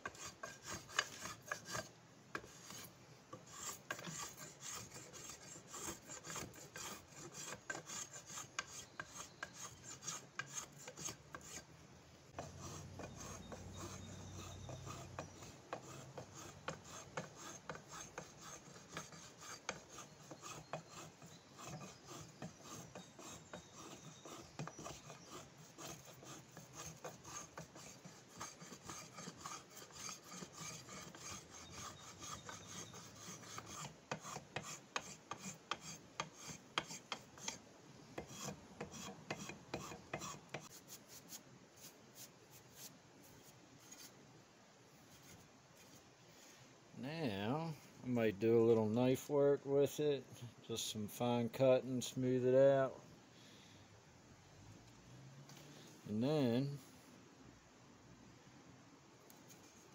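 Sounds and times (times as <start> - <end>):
rasp scraping wood: 0.0 - 11.7, 12.4 - 41.3.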